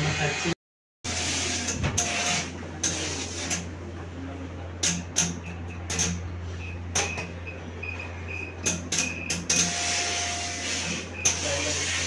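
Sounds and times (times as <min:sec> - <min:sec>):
steam iron hissing: 0:09.6 - 0:12.0.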